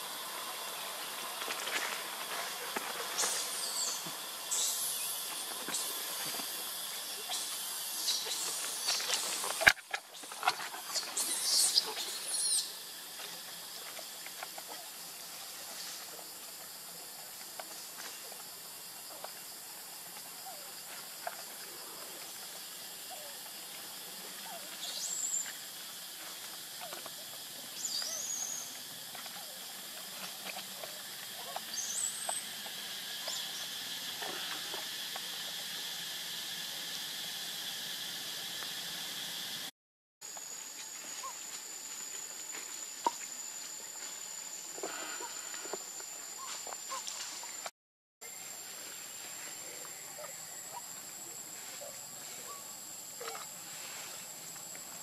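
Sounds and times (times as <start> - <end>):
outdoor hiss: 0.0 - 55.0.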